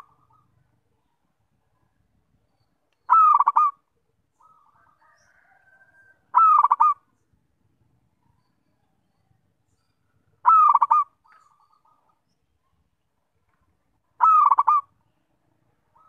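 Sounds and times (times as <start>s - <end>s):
dove cooing: 0.0s - 0.7s, 3.1s - 3.8s, 6.3s - 7.0s, 10.4s - 12.1s, 14.2s - 14.9s.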